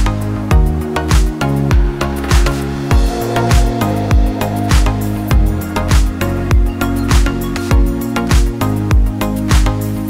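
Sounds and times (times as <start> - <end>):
deep kick drum beat: 0.0 - 9.7
sustained synth tones: 2.9 - 7.5.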